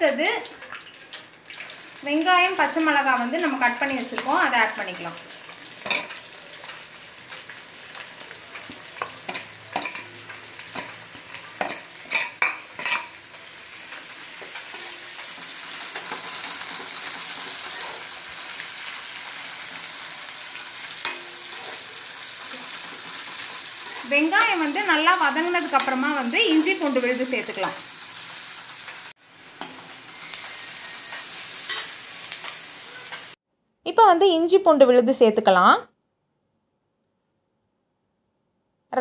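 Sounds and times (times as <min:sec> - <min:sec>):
onions sizzling in oil: 0:00.0 - 0:33.4
metal ladle clinking and scraping pan: 0:05.8 - 0:06.2, 0:09.0 - 0:10.1, 0:11.5 - 0:13.2, 0:14.4 - 0:15.2, 0:17.6 - 0:18.2, 0:21.0 - 0:22.0, 0:29.6 - 0:33.3.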